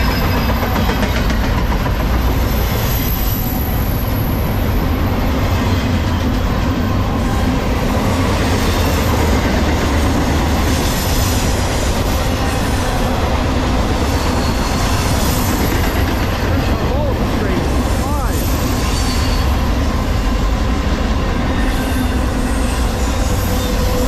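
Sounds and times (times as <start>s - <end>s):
freight train wheels rumbling on rail: 0.0s - 24.0s
high wheel squeal: 2.3s - 24.0s.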